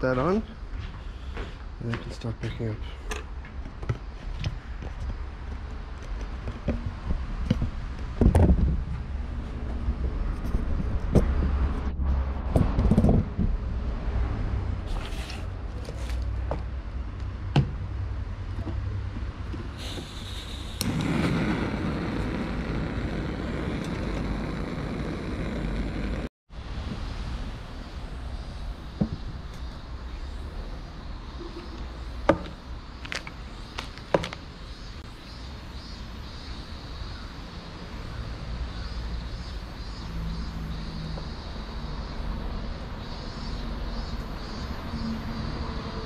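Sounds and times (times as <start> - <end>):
steady rushing noise: 20.6 - 30.6
steady low rumble: 20.8 - 29.5.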